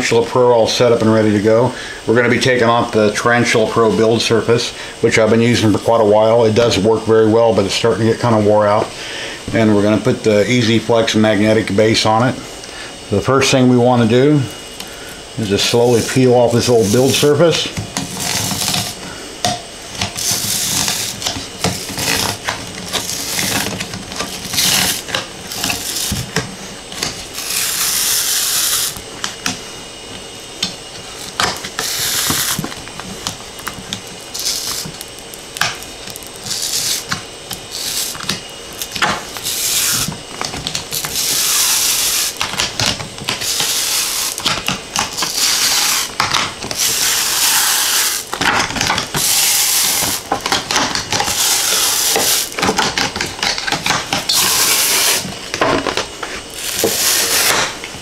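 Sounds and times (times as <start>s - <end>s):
sheet peeling with rough hiss: 14.5s - 19.2s, 20.0s - 40.3s, 40.9s - 42.6s, 43.3s - 52.8s, 54.0s - 55.4s, 56.2s - 57.8s.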